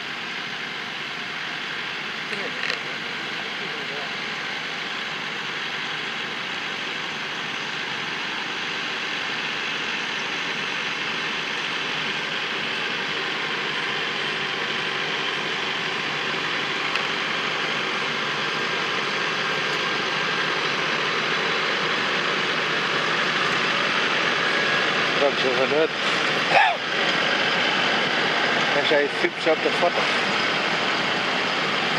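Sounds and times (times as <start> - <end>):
harvester machinery running: 0.0 - 31.9
tractor diesel engine running: 0.0 - 31.9.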